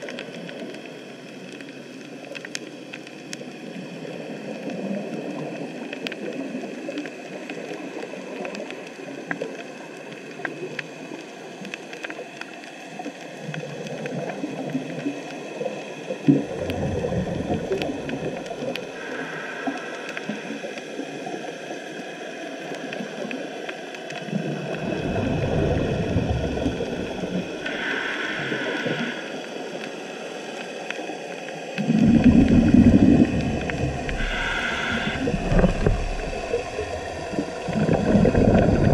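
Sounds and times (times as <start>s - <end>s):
faint reef crackling: 0.0s - 38.9s
rumbling bubbles: 13.4s - 20.6s, 24.1s - 29.2s, 31.8s - 38.9s
scuba regulator breathing: 18.8s - 20.6s, 25.5s - 30.0s, 31.8s - 38.9s.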